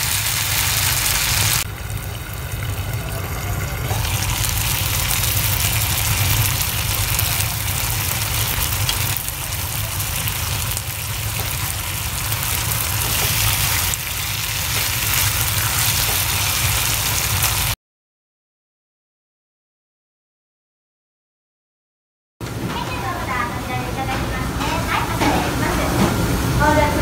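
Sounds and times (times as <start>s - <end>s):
frying pan bubbling and sizzling: 0.0s - 17.8s.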